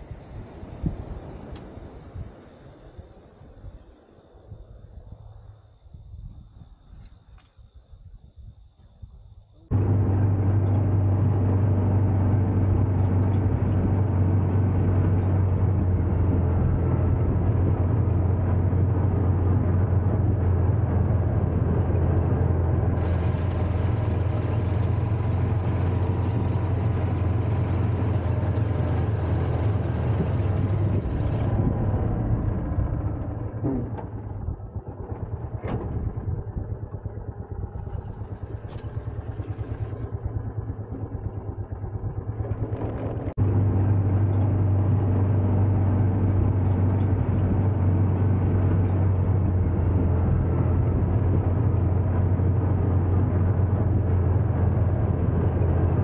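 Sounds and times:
crickets chirping: 0.0s - 9.7s
utility vehicle engine running: 9.6s - 56.0s.

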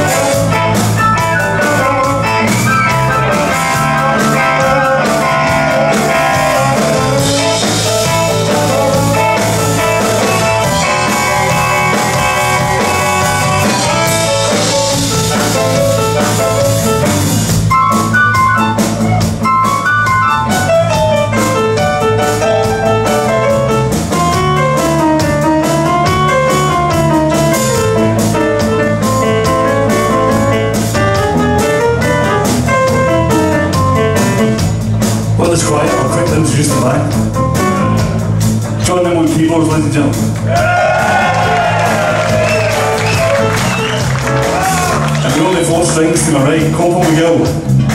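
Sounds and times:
drum kit: 0.0s - 47.9s
electric guitar blues: 0.0s - 47.9s
keyboard: 0.0s - 47.9s.

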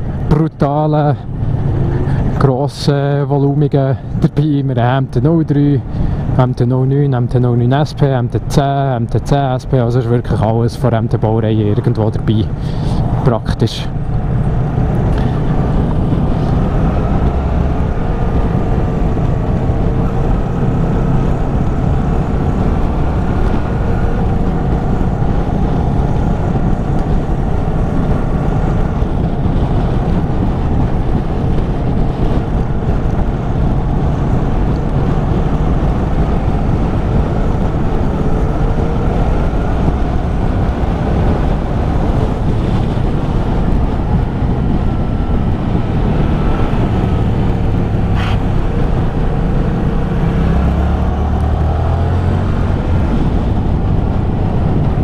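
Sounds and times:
wind and road noise: 0.0s - 55.0s
motorcycle engine running: 13.9s - 55.0s.

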